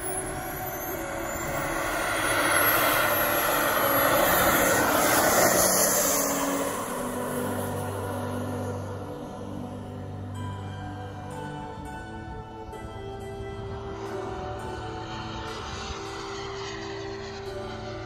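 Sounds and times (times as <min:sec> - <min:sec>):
model jet engine whine: 0:00.0 - 0:18.0.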